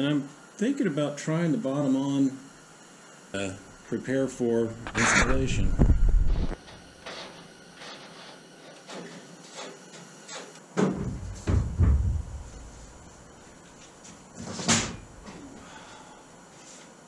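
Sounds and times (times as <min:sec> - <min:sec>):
plywood panel bumping on wood: 0:10.8 - 0:12.4.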